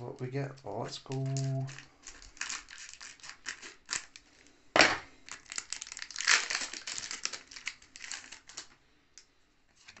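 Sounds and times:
foil wrapper crinkling: 0:00.1 - 0:04.5, 0:05.2 - 0:08.8
scissors cutting foil pack: 0:01.0 - 0:04.2, 0:05.3 - 0:08.6.

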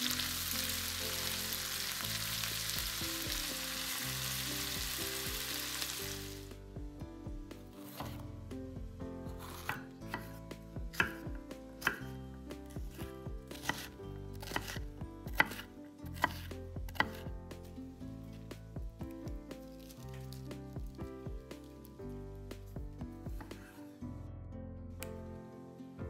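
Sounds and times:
soft background music: 0:00.0 - 0:26.0
knife chopping on cutting board: 0:07.8 - 0:08.3, 0:09.3 - 0:12.1, 0:12.9 - 0:17.2, 0:23.3 - 0:23.8.

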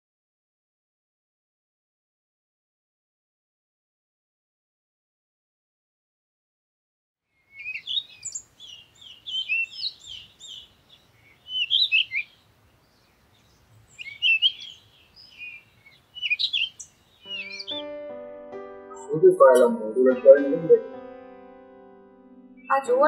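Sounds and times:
small birds chirping: 0:07.4 - 0:17.9
soft keyboard music: 0:17.2 - 0:23.0.

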